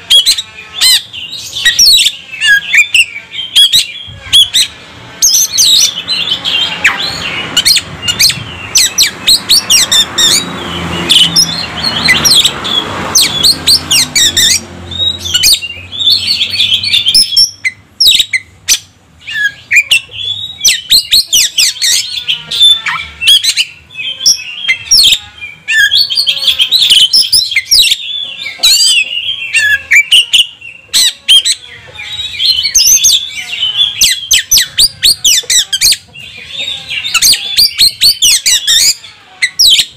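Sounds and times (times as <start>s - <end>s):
magpie-robin singing: 0.0s - 39.9s.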